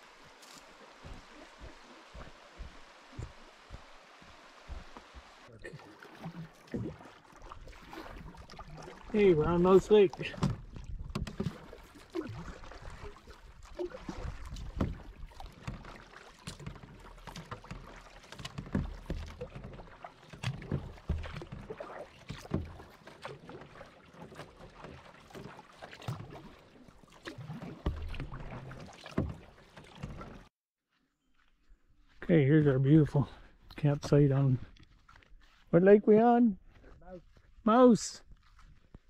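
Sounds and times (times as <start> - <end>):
water splashing and dripping: 0.0 - 30.5
paddle strokes through water: 0.0 - 30.7.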